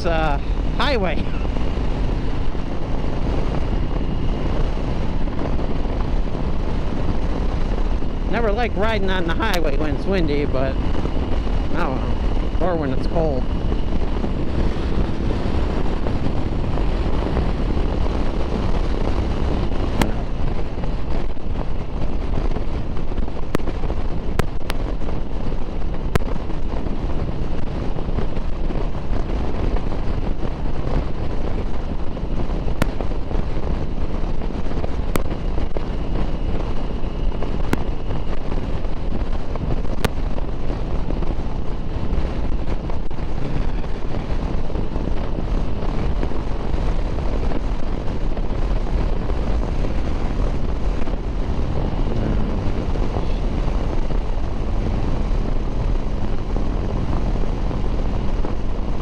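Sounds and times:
motorcycle engine and road noise: 0.0 - 59.0
wind buffeting microphone: 0.0 - 59.0.

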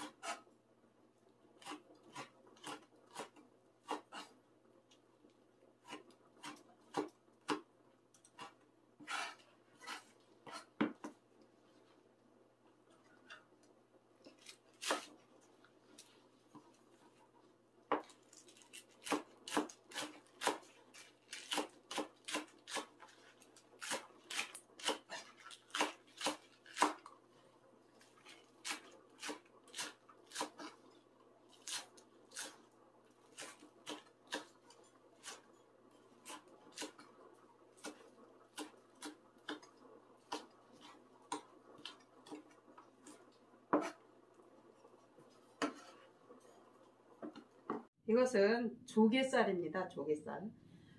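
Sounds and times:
knife chopping on cutting board: 1.6 - 4.3, 19.0 - 20.7, 23.8 - 27.0, 28.6 - 30.8, 37.8 - 39.7, 43.7 - 44.0, 45.6 - 46.0.

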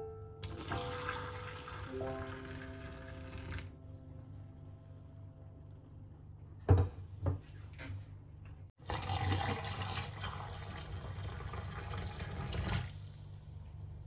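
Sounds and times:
water pouring into a metal sink: 0.4 - 3.7, 8.8 - 13.2.

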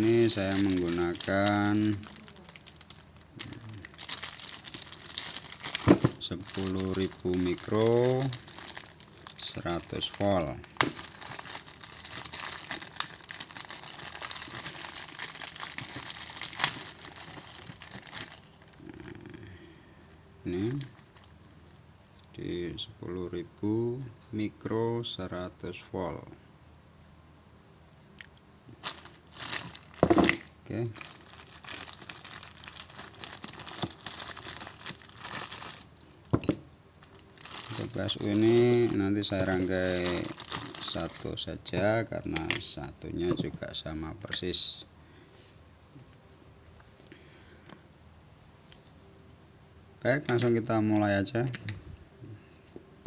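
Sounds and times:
plastic wrapping crinkling: 0.0 - 18.9, 20.6 - 21.5, 28.8 - 41.8.

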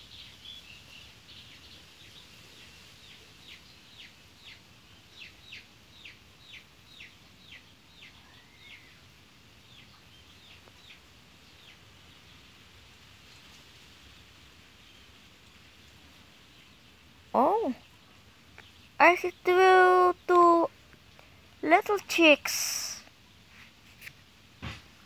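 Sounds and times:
chicks peeping: 9.6 - 12.5.

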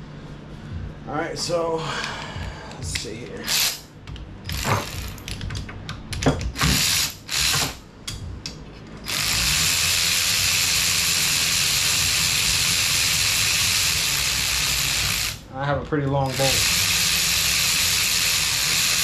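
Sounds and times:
power ratchet spinning: 3.4 - 5.4, 6.6 - 7.8, 9.0 - 15.4, 16.2 - 19.0.

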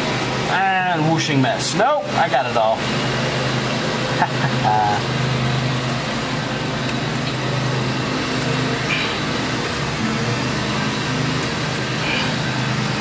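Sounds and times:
background hum and hiss: 0.0 - 13.0.

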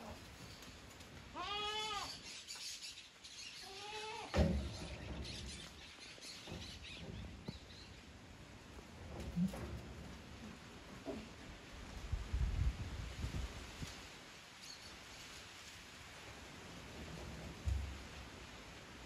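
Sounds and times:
goat bleating: 1.3 - 2.2, 3.7 - 4.4.

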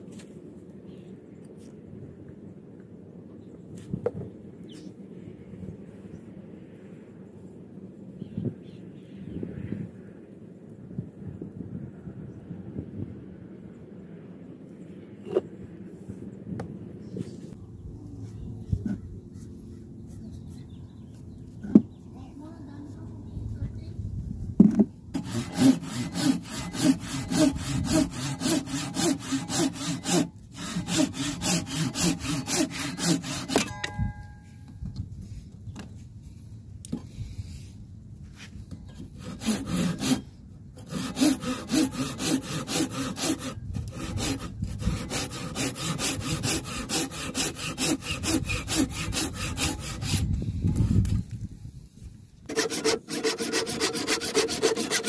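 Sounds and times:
pull saw cutting wood: 25.2 - 33.7, 39.0 - 51.2, 52.5 - 55.0.

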